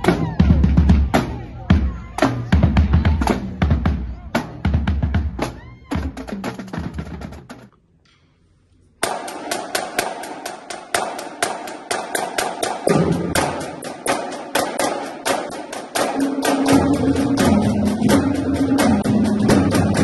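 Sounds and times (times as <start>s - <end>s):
snare drums playing: 0.0s - 7.7s, 9.0s - 20.0s
tenor and bass drums: 0.0s - 7.7s
intro music: 12.8s - 20.0s.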